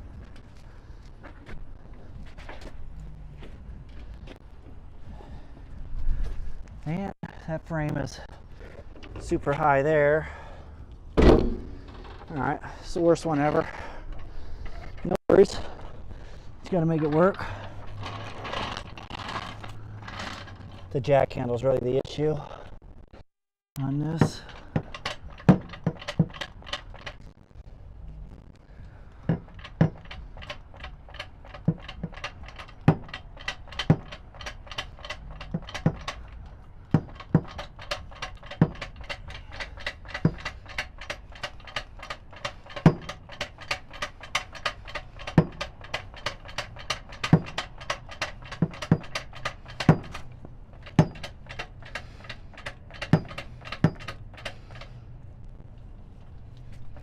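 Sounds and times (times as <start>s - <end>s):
floor jack clicking and knocking: 24.1s - 27.2s, 29.2s - 54.9s.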